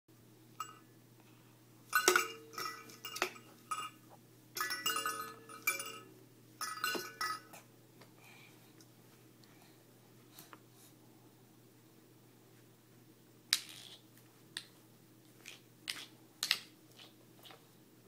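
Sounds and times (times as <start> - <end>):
toy chiming and clinking: 1.9 - 4.0, 4.6 - 7.6.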